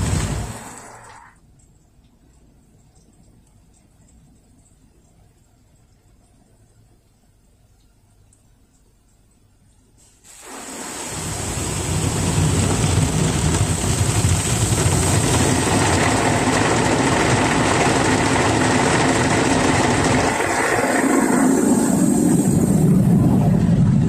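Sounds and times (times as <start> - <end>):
car wash water spray: 0.0 - 1.4, 10.0 - 23.3.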